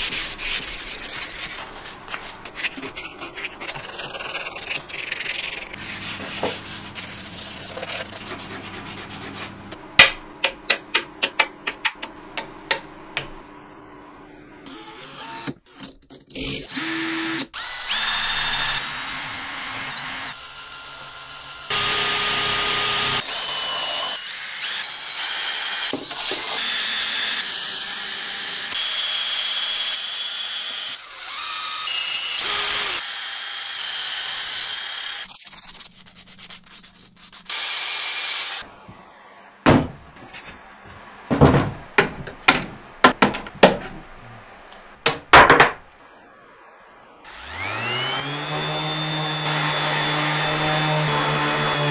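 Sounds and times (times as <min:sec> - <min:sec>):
power tools whining: 0:16.4 - 0:35.3, 0:46.3 - 0:51.9.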